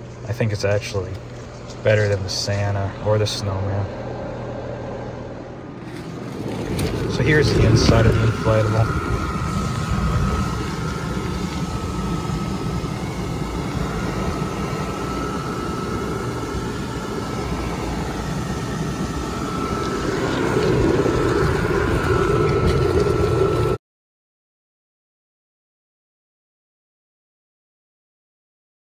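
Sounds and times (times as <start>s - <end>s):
electric blower fan whirring: 0.0s - 23.8s.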